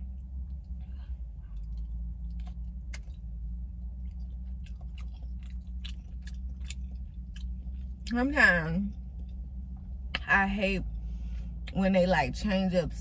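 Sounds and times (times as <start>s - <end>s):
close-up chewing: 0.0s - 8.1s
steady low hum: 0.0s - 13.0s.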